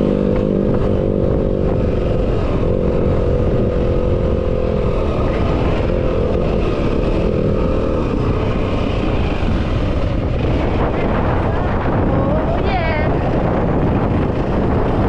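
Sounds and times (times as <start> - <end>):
dirt bike engine running: 0.0 - 15.0.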